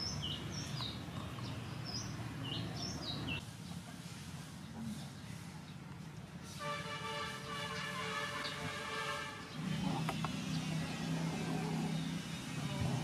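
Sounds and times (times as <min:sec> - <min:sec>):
birds chirping: 0:00.0 - 0:03.4, 0:07.4 - 0:13.0.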